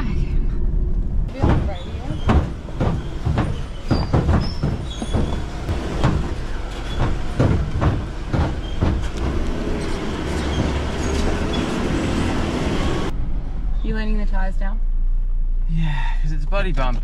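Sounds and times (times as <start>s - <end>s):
engine and tyres droning: 0.0s - 17.0s
caravan knocks and rattles: 1.3s - 13.1s.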